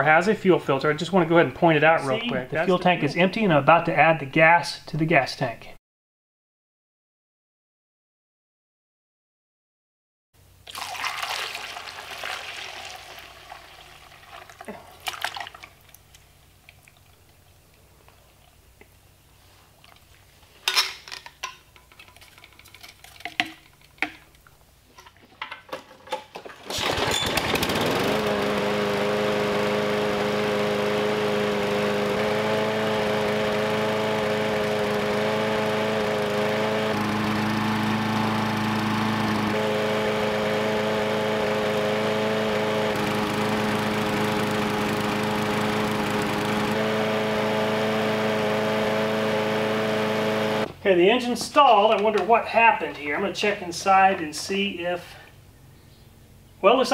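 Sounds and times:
handling clicks and knocks: 0:19.8 - 0:26.7
lawnmower engine running: 0:25.4 - 0:52.3.

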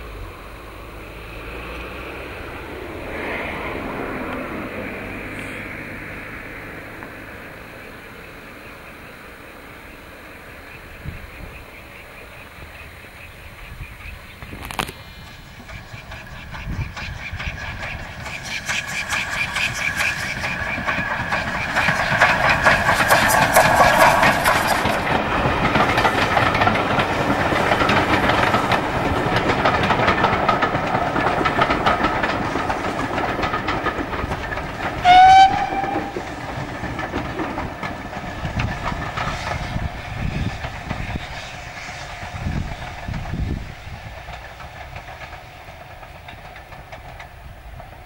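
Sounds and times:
steam train rolling past: 0:00.0 - 0:48.0
steam whistle blast: 0:35.0 - 0:36.3.

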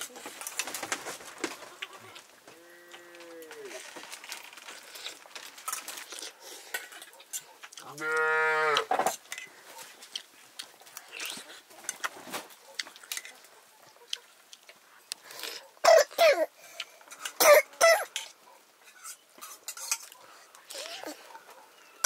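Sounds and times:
farm animal call: 0:07.8 - 0:09.1.

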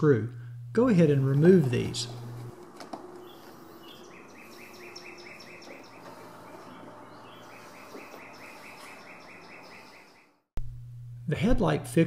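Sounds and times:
faint steady hum: 0:00.0 - 0:08.8, 0:10.6 - 0:12.0
high rhythmic chirping: 0:03.2 - 0:10.1.

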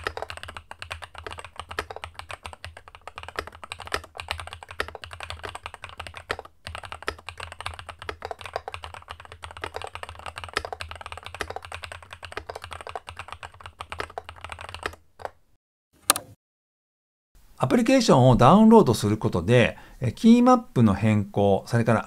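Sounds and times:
fast mechanical keyboard typing: 0:00.0 - 0:15.4.

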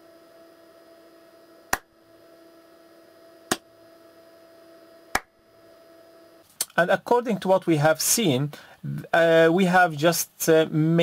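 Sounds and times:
faint steady hum: 0:00.0 - 0:11.0
hand claps: 0:03.5 - 0:03.7, 0:05.1 - 0:05.3.

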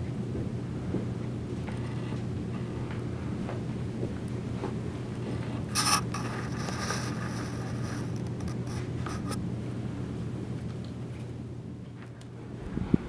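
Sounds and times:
steady low hum: 0:00.0 - 0:13.0
rustling and scraping: 0:04.6 - 0:09.4.

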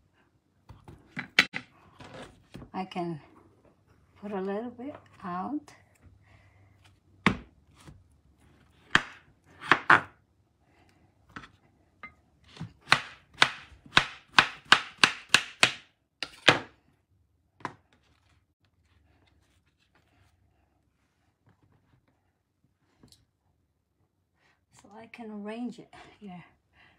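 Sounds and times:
knife chopping on wooden board: 0:08.9 - 0:10.2, 0:12.5 - 0:16.7.

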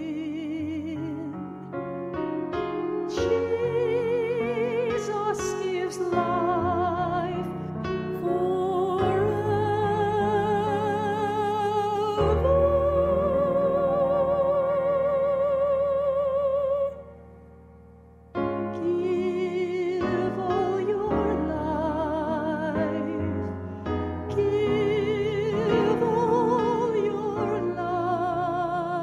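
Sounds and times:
piano accompaniment: 0:00.0 - 0:29.0
woman singing operatically: 0:03.1 - 0:07.5, 0:08.2 - 0:17.0, 0:18.8 - 0:23.5, 0:24.2 - 0:29.0.

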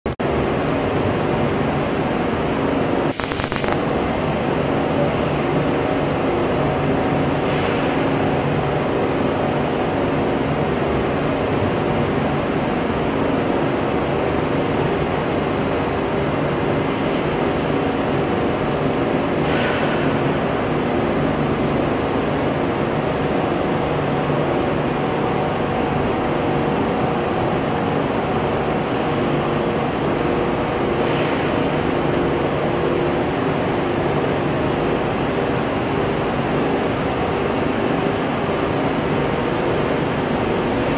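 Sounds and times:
industrial machinery hum: 0:00.1 - 0:40.9
hiss: 0:03.1 - 0:03.9.

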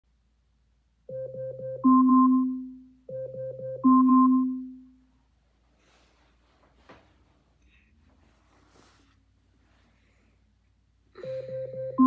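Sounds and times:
electronic keyboard jingle: 0:01.1 - 0:04.6, 0:11.2 - 0:12.0.

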